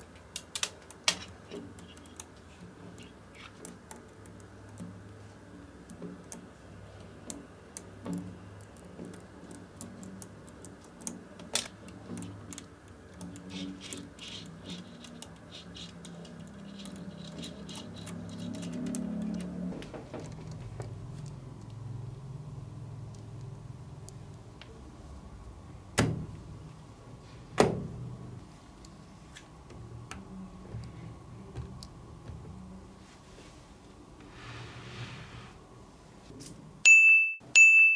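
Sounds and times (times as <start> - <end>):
magnetic balls clicking: 0.0 - 21.8.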